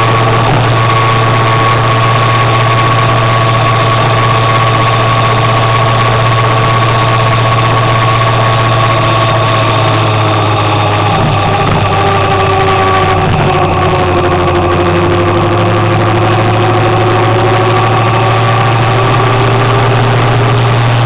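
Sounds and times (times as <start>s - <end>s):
motor scooter engine droning: 0.0s - 21.0s
road and wind noise: 0.0s - 21.0s.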